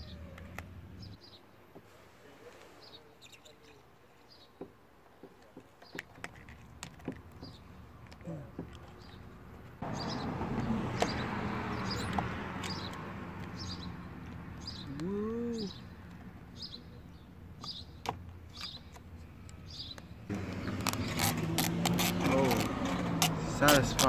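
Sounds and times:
small bird chirping: 2.8 - 4.6, 11.8 - 21.3.

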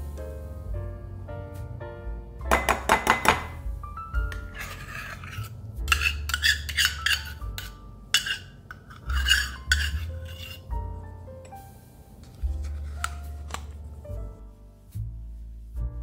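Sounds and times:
soft background music: 0.0 - 16.0
metal cup scraping and clinking: 4.3 - 10.7.

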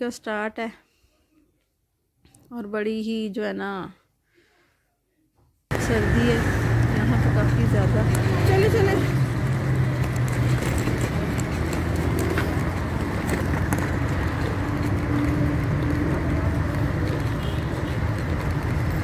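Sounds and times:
low rumble of street traffic: 5.7 - 19.0.

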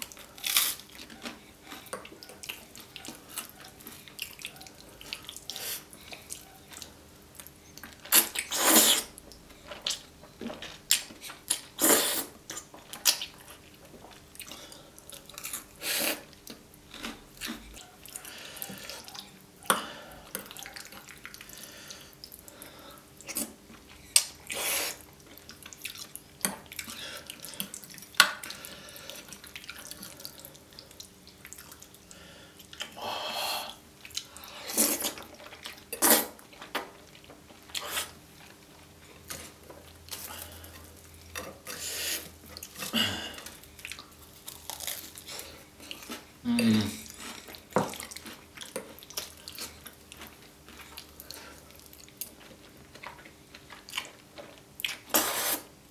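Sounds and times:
noodle slurping: 8.1 - 9.1, 55.1 - 55.7
smacking chewing: 33.7 - 55.6.

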